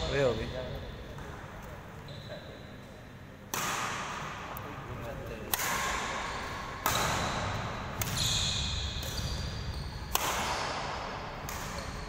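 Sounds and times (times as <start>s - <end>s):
rackets striking shuttlecock: 3.4s - 4.7s, 5.4s - 12.0s.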